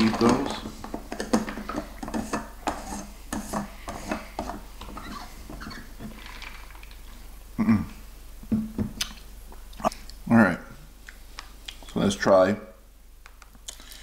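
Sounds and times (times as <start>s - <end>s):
person humming: 7.6s - 8.0s.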